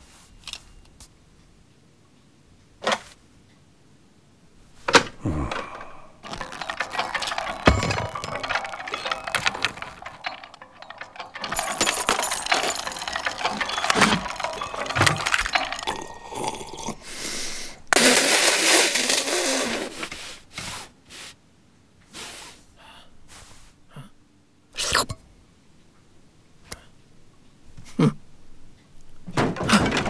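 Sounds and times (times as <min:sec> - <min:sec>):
quick clinks and clicks: 0:05.5 - 0:17.3
hiss: 0:19.6 - 0:21.4, 0:22.1 - 0:22.6.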